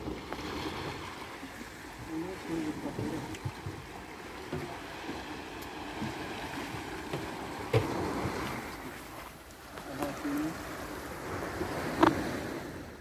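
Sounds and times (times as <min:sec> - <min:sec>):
sea water lapping around boat: 0:00.0 - 0:13.0
knocks on boat: 0:02.8 - 0:04.9, 0:05.9 - 0:08.5
wind on microphone: 0:10.8 - 0:13.0.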